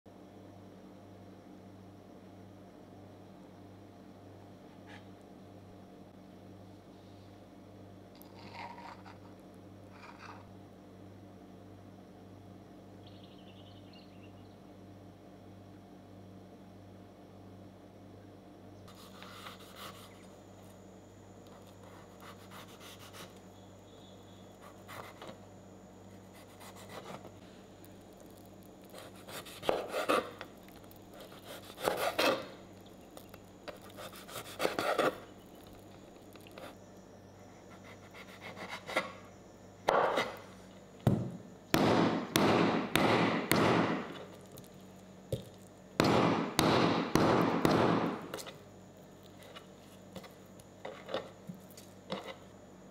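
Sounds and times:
knife scraping on cutting board: 0:29.0 - 0:30.5, 0:31.2 - 0:32.5, 0:33.7 - 0:35.3, 0:37.7 - 0:39.2, 0:39.9 - 0:40.5, 0:49.4 - 0:51.4, 0:52.1 - 0:52.4
meat tenderizer pounding: 0:41.8 - 0:44.2, 0:46.0 - 0:48.4.

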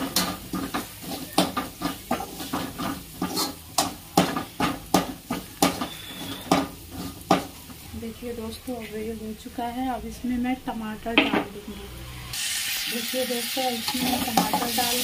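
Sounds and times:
spoon scraping a metal pan: 0:00.0 - 0:07.5, 0:13.8 - 0:15.0
masala frying: 0:00.0 - 0:15.0.

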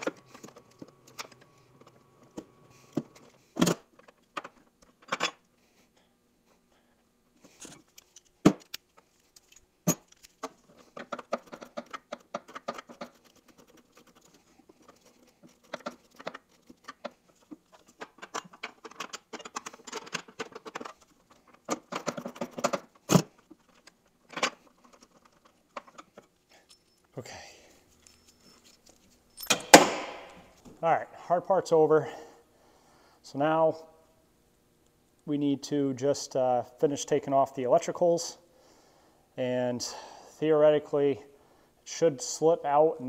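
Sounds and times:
metal tool clinks: 0:26.6 - 0:27.1, 0:29.3 - 0:29.8.

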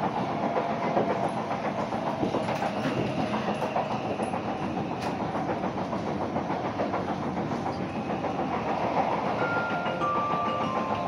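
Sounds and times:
train wheels rattling on rails: 0:00.0 - 0:11.0.

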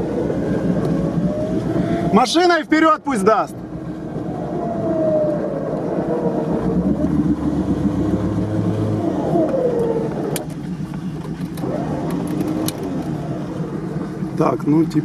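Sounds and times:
vehicle engine revving under load: 0:03.7 - 0:15.0.

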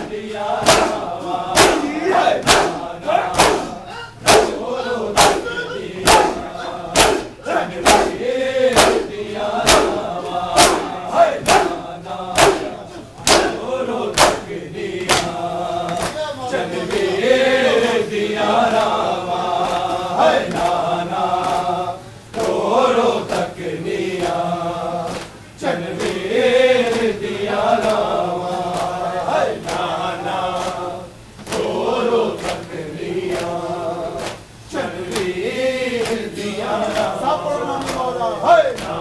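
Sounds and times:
men chanting in unison: 0:00.0 - 0:39.0
hand slaps on chest: 0:00.6 - 0:01.0, 0:02.4 - 0:02.8, 0:03.4 - 0:04.6, 0:07.0 - 0:08.2, 0:08.8 - 0:10.0, 0:10.6 - 0:11.8, 0:12.4 - 0:12.7, 0:13.3 - 0:13.6, 0:14.2 - 0:14.5, 0:15.1 - 0:15.3.

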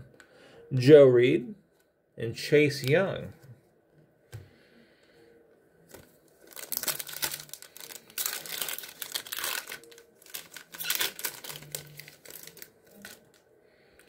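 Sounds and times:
card pack wrapper tearing: 0:06.4 - 0:13.4.

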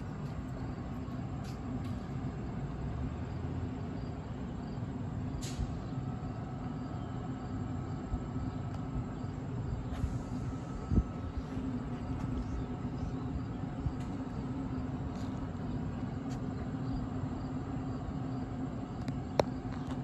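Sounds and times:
train rumbling: 0:00.0 - 0:20.0
brief high hiss: 0:05.4 - 0:05.8.

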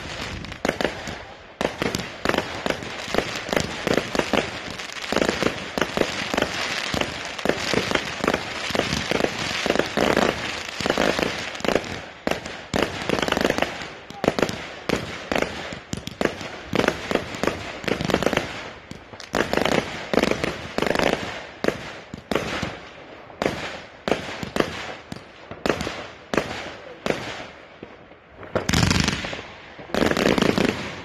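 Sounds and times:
fountain firework spraying sparks: 0:00.0 - 0:01.1, 0:01.7 - 0:21.3
fireworks bangs and crackles: 0:00.0 - 0:31.0.

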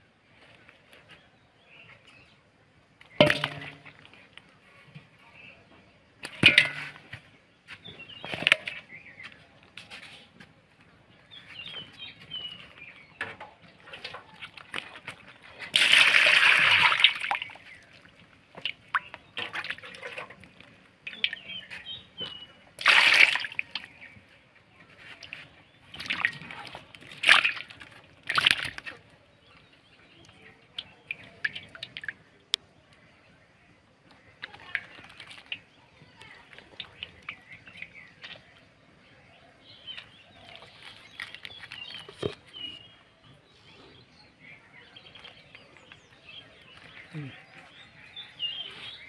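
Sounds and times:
fish thrashing and splashing: 0:13.9 - 0:24.1, 0:25.2 - 0:29.2, 0:34.4 - 0:38.5
water pouring into a basin: 0:15.7 - 0:18.0, 0:22.8 - 0:23.9.

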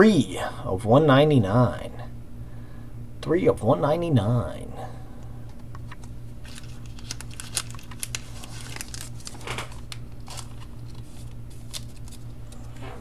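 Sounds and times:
packaging crinkling and clicking: 0:05.5 - 0:12.8
plastic packaging rustle: 0:05.8 - 0:13.0.

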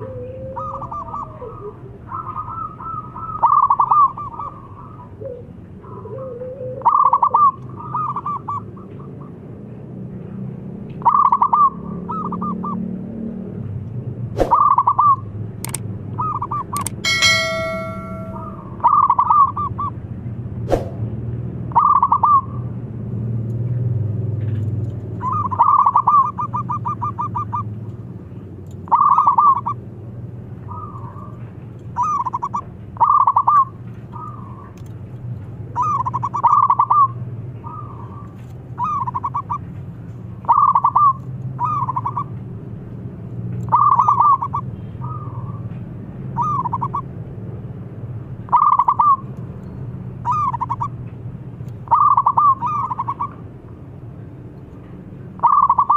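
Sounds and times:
dove cooing: 0:00.0 - 0:08.5.

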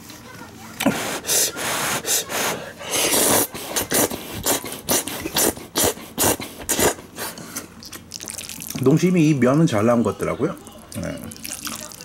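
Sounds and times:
person slurping noodles: 0:00.8 - 0:07.4
chewing noises: 0:03.1 - 0:08.9, 0:10.9 - 0:12.0.

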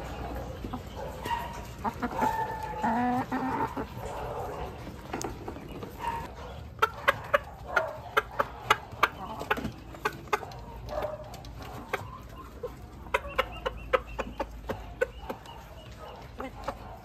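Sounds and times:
hens clucking: 0:00.0 - 0:17.0.

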